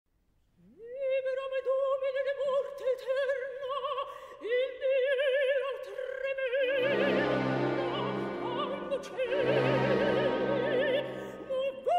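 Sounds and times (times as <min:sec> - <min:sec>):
operatic voice singing: 0:05.6 - 0:11.9
orchestra playing: 0:06.8 - 0:11.7.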